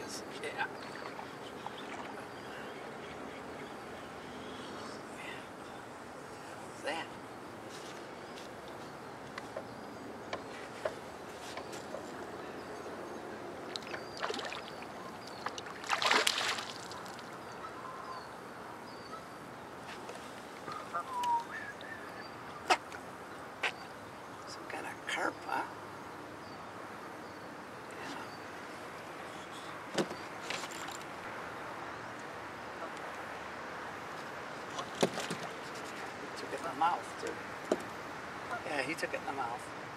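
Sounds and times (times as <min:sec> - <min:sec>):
fish splashing at the surface: 0:13.8 - 0:14.9, 0:15.5 - 0:17.3.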